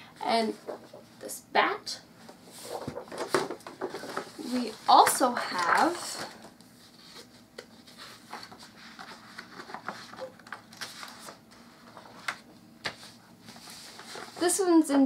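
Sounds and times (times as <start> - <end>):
paper page turning: 6.8 - 14.4.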